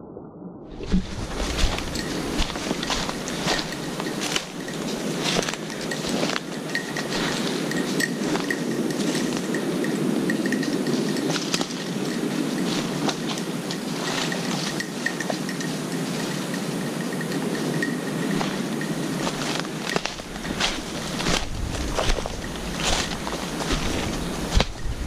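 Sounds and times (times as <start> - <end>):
twig crackles: 0.8 - 8.5, 18.4 - 25.0
brushing through undergrowth: 0.8 - 25.0
footsteps crunching through dry leaves: 0.8 - 25.0.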